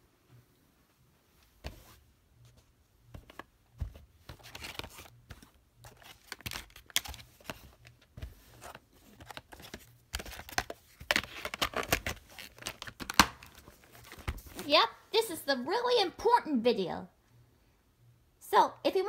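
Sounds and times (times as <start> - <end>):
plastic cassette clicks and knocks: 9.2 - 13.5.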